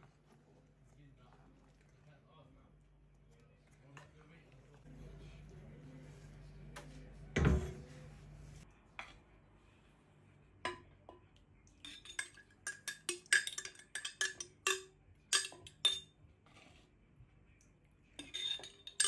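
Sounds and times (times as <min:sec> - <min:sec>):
metal spoon clinking on glass jar: 0:11.8 - 0:16.1, 0:18.2 - 0:19.0.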